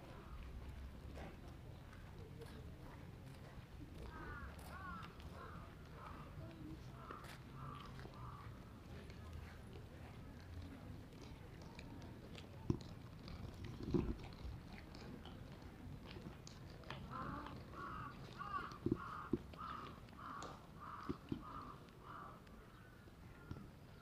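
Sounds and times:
crow cawing: 4.2 - 5.6, 17.1 - 22.4.

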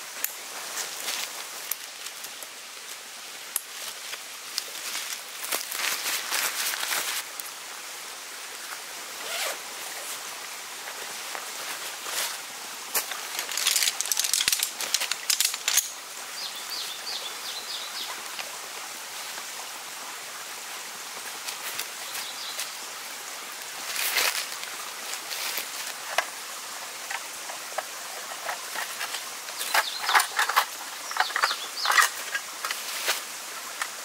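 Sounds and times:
tent fabric rustling and scraping: 3.8 - 7.3, 9.2 - 16.0, 23.8 - 26.4, 27.0 - 34.0.

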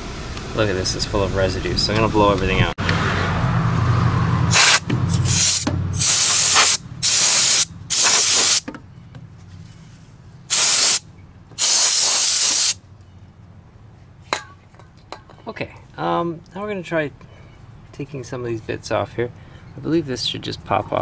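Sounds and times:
compressed air hissing bursts: 4.5 - 8.6, 10.5 - 11.0, 11.6 - 12.8.

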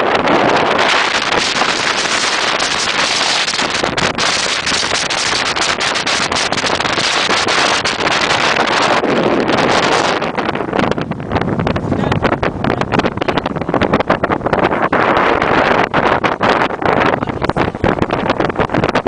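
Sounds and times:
wind buffeting microphone: 0.0 - 19.0
sharp crackles: 0.8 - 8.8.

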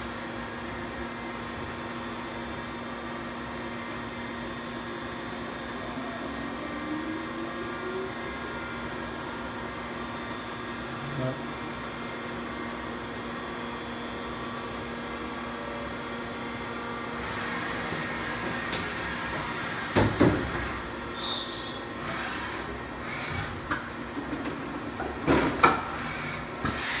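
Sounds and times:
machine whir: 17.1 - 23.6.

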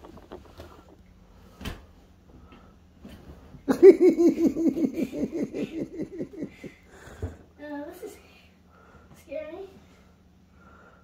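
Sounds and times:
person laughing: 3.7 - 6.8.

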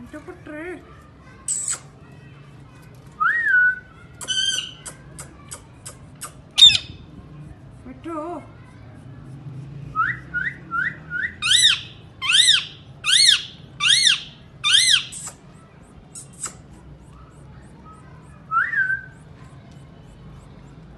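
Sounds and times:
parakeet screeches: 1.5 - 1.9, 4.2 - 5.0, 6.2 - 7.0, 11.4 - 15.5, 16.1 - 16.6
parakeet calling: 4.3 - 4.9, 6.6 - 7.0, 11.4 - 15.4.

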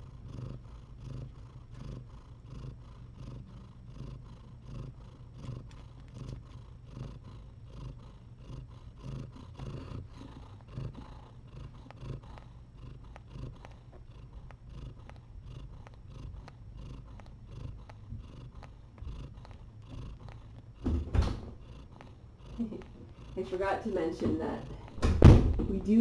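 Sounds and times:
cat purring: 0.0 - 26.0
faint small clicks: 13.1 - 13.8.

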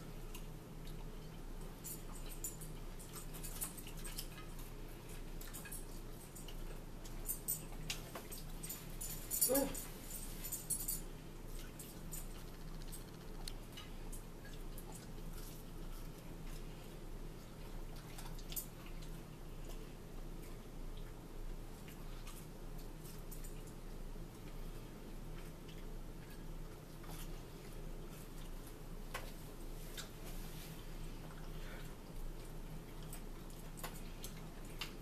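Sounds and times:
quiet eating sounds: 0.0 - 35.0
steady low hum: 0.0 - 35.0.

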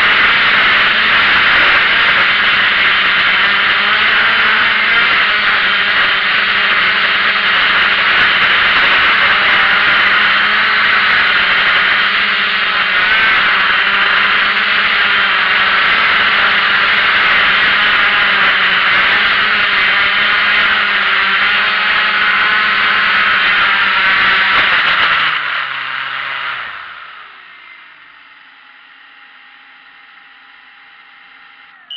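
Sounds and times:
drone motors and propellers: 0.0 - 31.9.

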